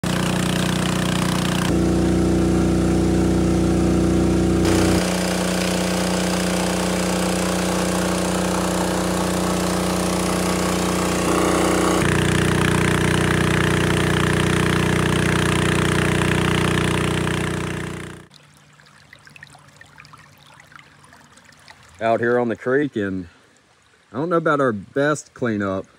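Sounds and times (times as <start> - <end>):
small engine running: 0.0 - 18.3
water rushing through sluice: 4.6 - 13.0.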